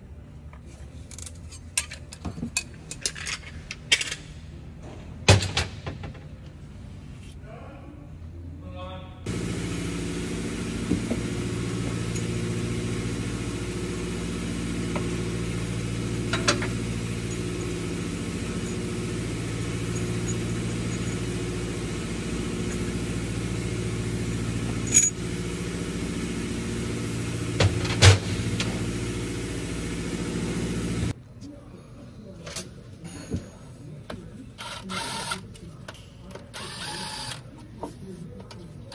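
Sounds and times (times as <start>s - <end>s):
low mechanical drone: 9.3s - 31.2s.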